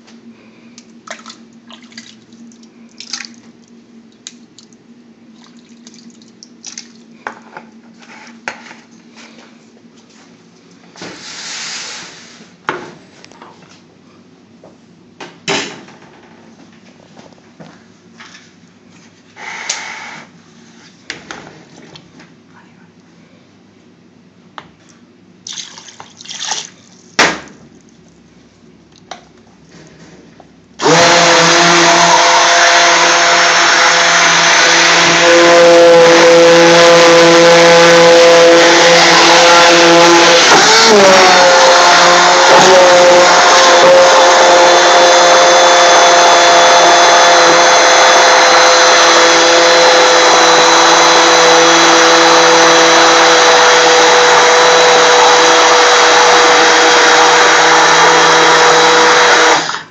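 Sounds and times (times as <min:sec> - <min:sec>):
stick blender running: 0:30.8 - 0:59.9.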